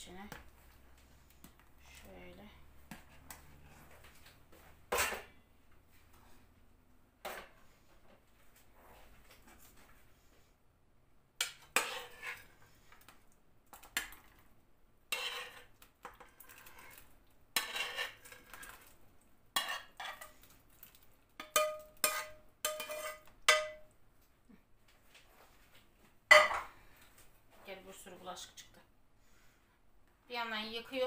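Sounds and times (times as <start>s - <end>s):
metal ladle scraping frying pan: 4.9s - 5.4s, 11.4s - 12.8s, 15.1s - 18.8s, 19.6s - 20.4s, 21.4s - 23.8s.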